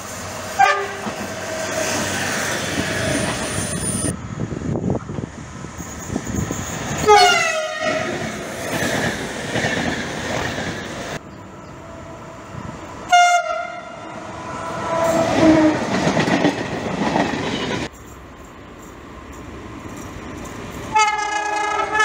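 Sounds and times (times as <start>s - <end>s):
diesel locomotive engine rumble: 0.0s - 22.0s
train rushing past: 0.0s - 22.0s
train horn: 0.6s - 1.9s, 7.0s - 8.3s, 13.1s - 15.9s, 20.9s - 22.0s.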